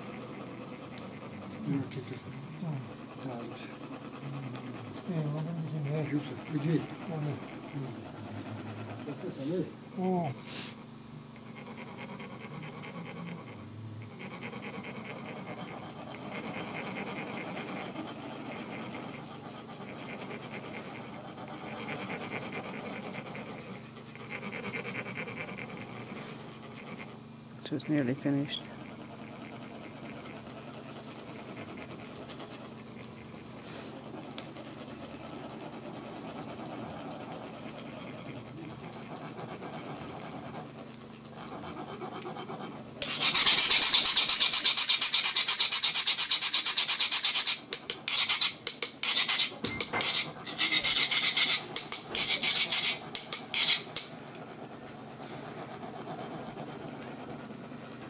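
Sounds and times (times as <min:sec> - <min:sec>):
metal rod rasping metal funnel: 0:43.0 - 0:54.1.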